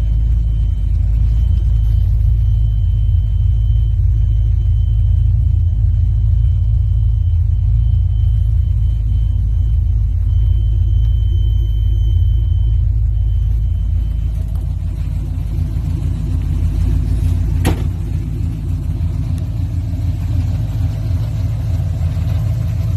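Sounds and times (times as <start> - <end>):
truck engine idling: 0.0 - 22.9
sharp knock: 17.6 - 18.0.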